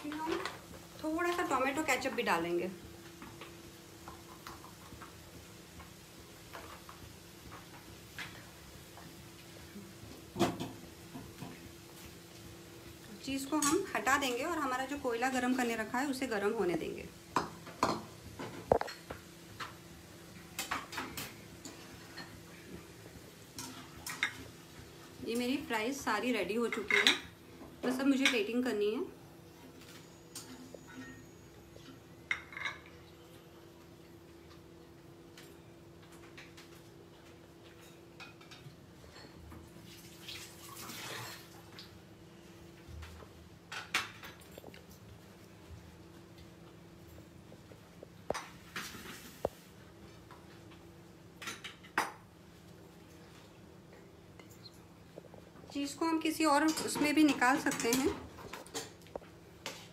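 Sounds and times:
kitchen utensils clinking: 0:26.6 - 0:28.7, 0:30.3 - 0:33.1, 0:56.4 - 0:59.0.

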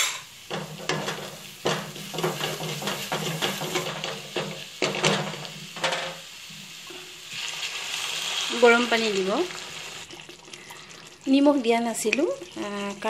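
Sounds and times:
spatula scraping a pan: 0:00.0 - 0:06.2
paste sizzling in hot oil: 0:00.1 - 0:13.0.

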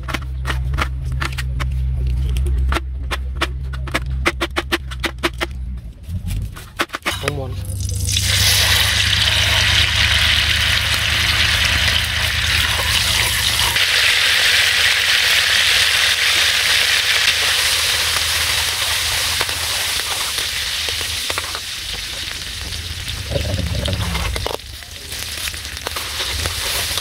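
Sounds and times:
oil sizzling in a wok: 0:07.7 - 0:27.0.

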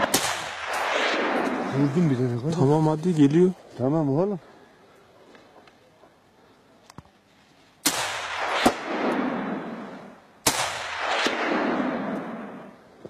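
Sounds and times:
gunshots with echo: 0:00.0 - 0:02.3, 0:07.8 - 0:12.8
sharp crack: 0:00.0 - 0:02.6, 0:07.8 - 0:09.8, 0:10.4 - 0:12.8.

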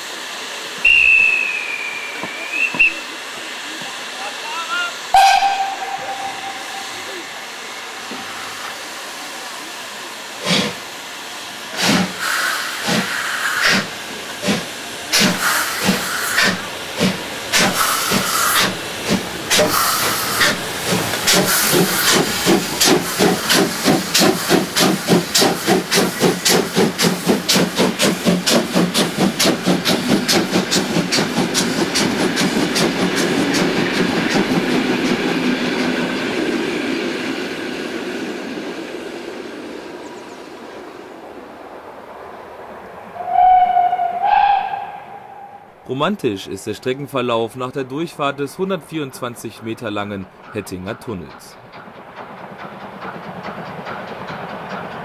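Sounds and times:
steam hissing: 0:00.0 - 0:40.8
short high whistle: 0:00.8 - 0:03.1, 0:05.2 - 0:07.5, 0:43.2 - 0:45.7
steam whistle: 0:00.8 - 0:03.1, 0:05.1 - 0:07.6, 0:43.2 - 0:45.7
locomotive exhaust beats: 0:00.8 - 0:03.9.

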